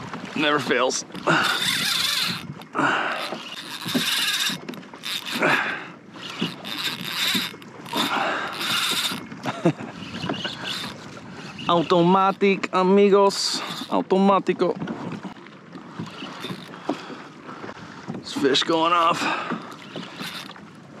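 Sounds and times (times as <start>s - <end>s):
fishing reel whirring: 1.2s - 12.4s, 13.4s - 14.0s, 16.0s - 16.8s, 19.6s - 20.6s.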